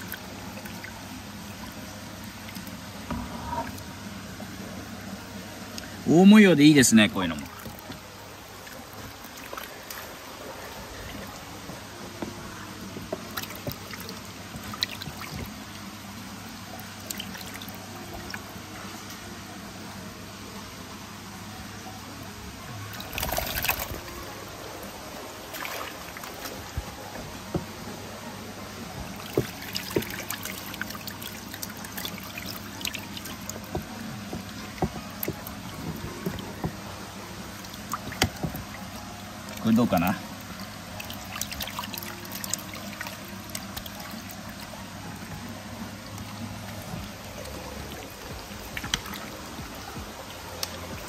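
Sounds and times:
water trickling: 0:00.0 - 0:51.0
small splashes and knocks: 0:07.3 - 0:10.2, 0:10.9 - 0:15.7, 0:22.9 - 0:24.1, 0:25.4 - 0:27.8, 0:28.9 - 0:51.0.

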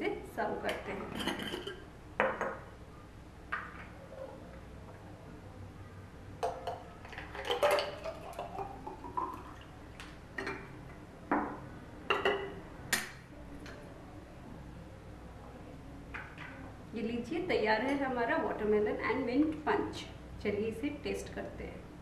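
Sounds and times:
liquid pouring into glass jar: 0:06.4 - 0:09.8.

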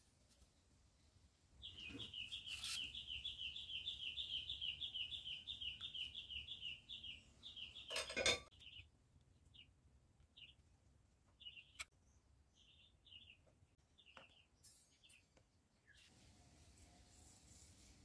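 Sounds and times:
small bird chirping: 0:00.5 - 0:10.7, 0:11.3 - 0:16.1
tools clattering on work surface: 0:07.9 - 0:08.5.

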